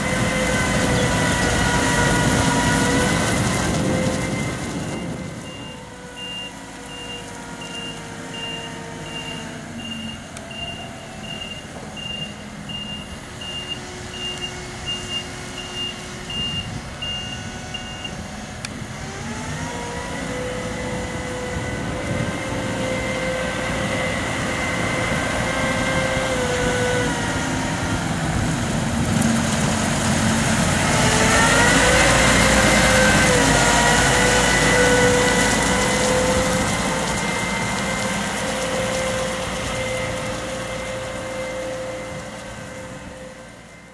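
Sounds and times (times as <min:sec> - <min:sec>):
diesel engine running: 0:00.0 - 0:43.9
reversing alarm beeping: 0:04.3 - 0:18.2.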